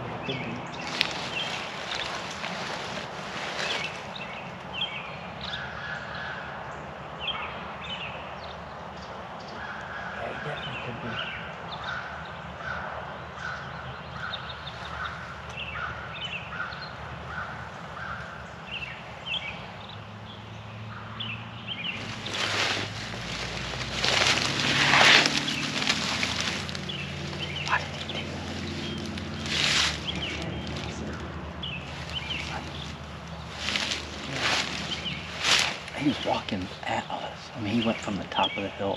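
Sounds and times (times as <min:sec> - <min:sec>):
small birds chirping: 0:00.0 - 0:38.9
rustling in dry leaves: 0:00.4 - 0:05.0, 0:14.5 - 0:19.8, 0:21.7 - 0:38.1.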